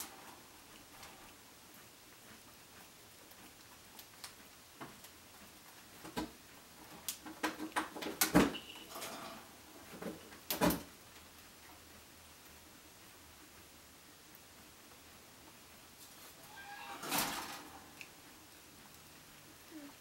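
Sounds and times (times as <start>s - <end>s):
kitchen knocks and clunks: 7.2s - 8.7s.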